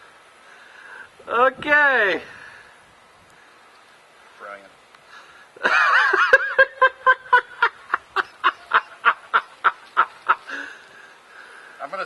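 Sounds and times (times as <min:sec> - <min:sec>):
person laughing high-pitched: 0:05.6 - 0:10.6.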